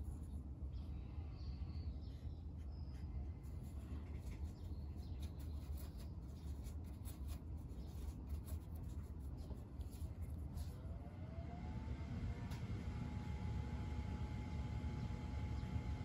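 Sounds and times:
low steady hum: 0.0 - 16.0
scratchy brush noises: 2.6 - 10.9.

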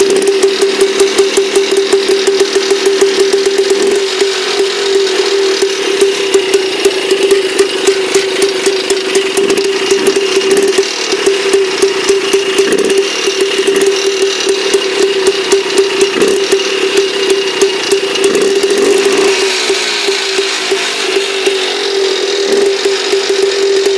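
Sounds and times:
tractor engine idling: 0.0 - 23.9.

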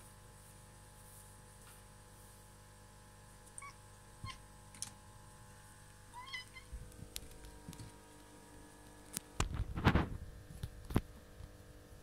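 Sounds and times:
cat chirping: 3.6 - 4.4, 6.1 - 6.8.

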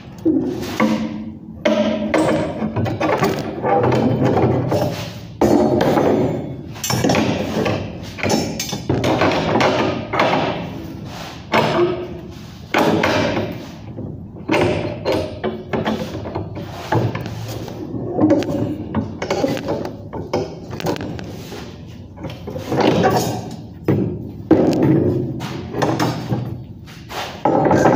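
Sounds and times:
steel bar clanking: 0.5 - 10.8.

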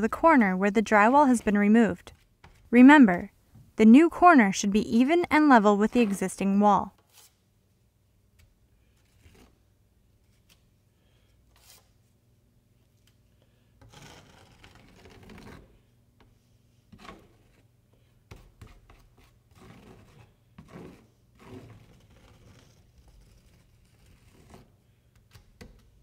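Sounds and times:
taping knife scraping: 7.0 - 7.4, 8.4 - 9.6, 11.5 - 12.0, 13.8 - 15.8, 18.3 - 25.8.

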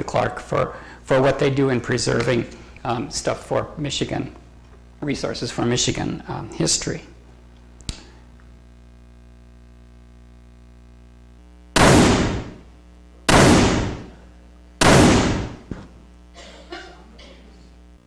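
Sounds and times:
gunshot bangs: 11.8 - 12.6, 13.3 - 14.2, 14.8 - 15.7.

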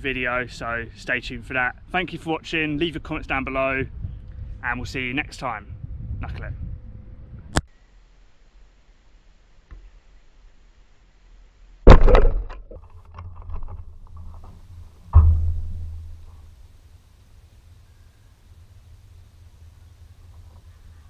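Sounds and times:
distant ball kick: 11.9 - 12.7, 15.1 - 16.5
football thudding against goal: 11.9 - 12.7.

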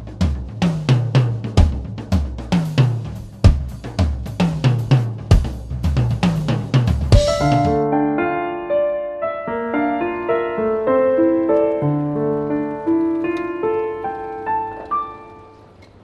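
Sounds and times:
drum kit beat: 0.0 - 7.9
keyboard chords: 7.1 - 16.0.

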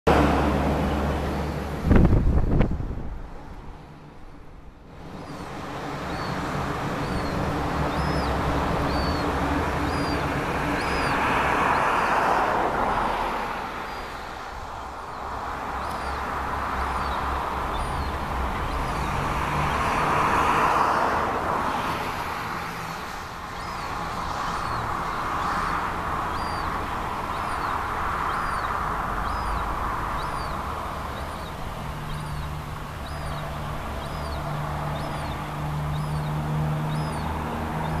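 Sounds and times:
road traffic passing: 0.0 - 38.0
bird peeping: 5.2 - 11.8, 15.8 - 19.2, 23.6 - 38.0.

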